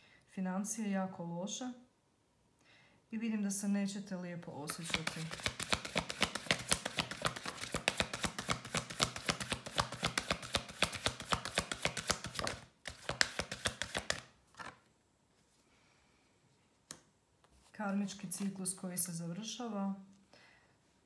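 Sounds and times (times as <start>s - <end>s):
cards tapped to settle: 4.7s - 14.3s
cards being shuffled: 4.7s - 14.9s.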